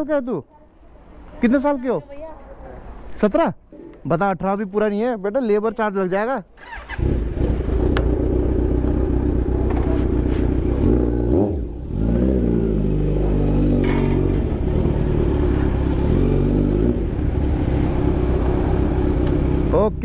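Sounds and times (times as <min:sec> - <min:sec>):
motorcycle engine running: 0:07.0 - 0:20.0.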